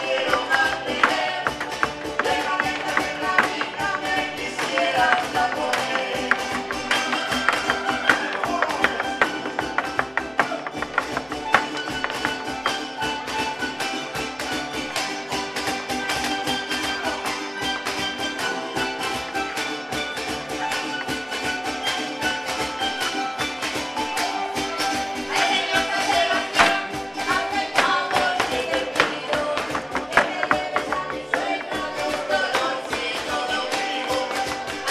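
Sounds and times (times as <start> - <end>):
shoes tapping on wooden stage: 0.0 - 13.8, 25.3 - 34.9
folk string music: 0.0 - 34.9.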